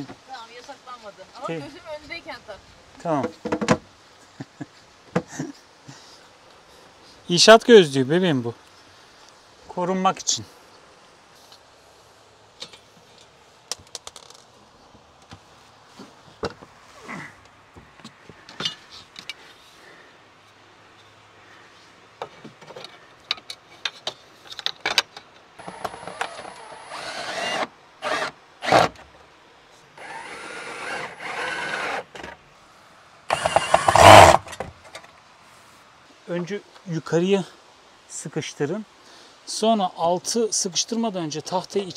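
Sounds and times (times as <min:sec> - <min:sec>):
power drill running: 0:25.6 - 0:28.9, 0:30.0 - 0:32.1, 0:33.3 - 0:34.5.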